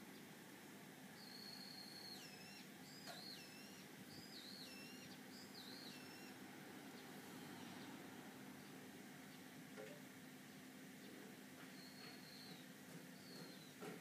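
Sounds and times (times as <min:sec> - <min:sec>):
faint steady hum: 0:00.0 - 0:14.0
faint whistled bird calls: 0:01.2 - 0:06.4, 0:07.3 - 0:08.0, 0:11.6 - 0:13.8.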